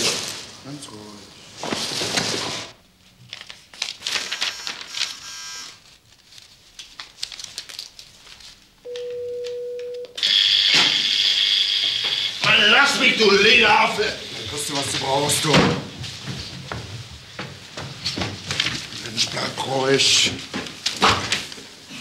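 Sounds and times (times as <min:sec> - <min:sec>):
paper pages rustling: 0:01.6 - 0:08.8, 0:18.0 - 0:21.9
intercom buzzer: 0:05.2 - 0:05.8, 0:08.9 - 0:14.5.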